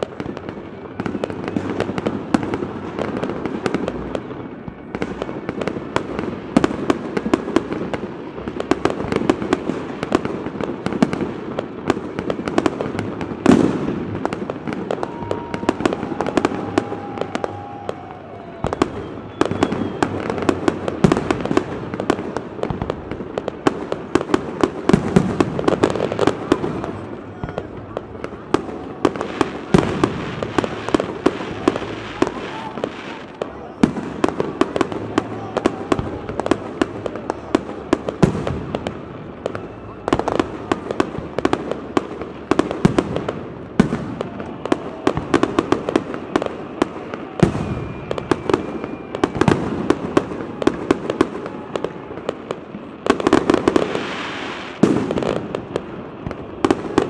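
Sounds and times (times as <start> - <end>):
firework bangs and crackling: 0.0 - 57.0.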